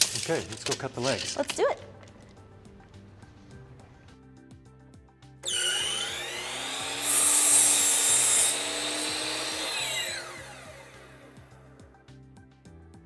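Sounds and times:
miter saw cutting wood: 0:05.4 - 0:11.6.

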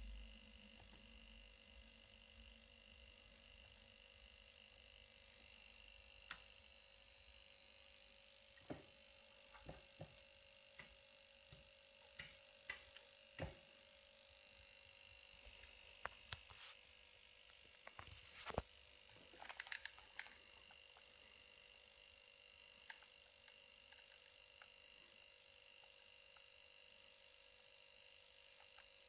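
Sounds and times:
faint steady hum: 0:00.0 - 0:29.0
small clicks and taps: 0:10.8 - 0:13.6.

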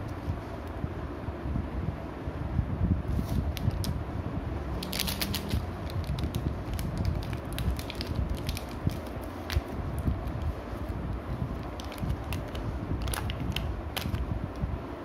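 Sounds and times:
foil sachet crinkling: 0:04.8 - 0:10.4, 0:11.5 - 0:14.2.

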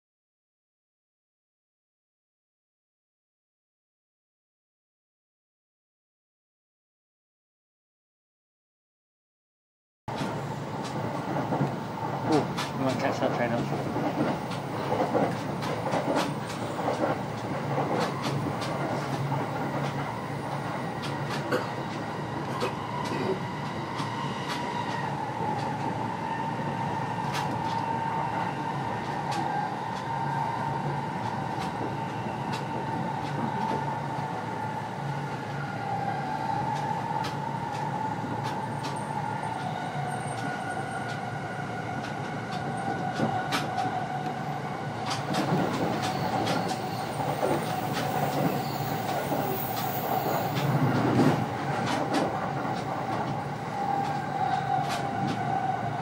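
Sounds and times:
steady train whine: 0:10.1 - 0:56.0
train wheels rumbling on track: 0:10.1 - 0:56.0.

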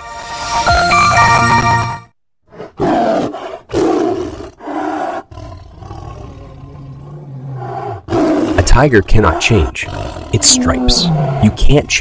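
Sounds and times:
tiger roaring: 0:02.5 - 0:11.8.

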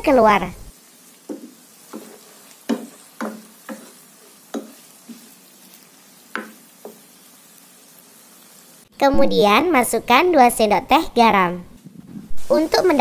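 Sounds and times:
faint sizzle: 0:00.0 - 0:13.0
wooden spatula scraping a pan: 0:00.8 - 0:08.7.

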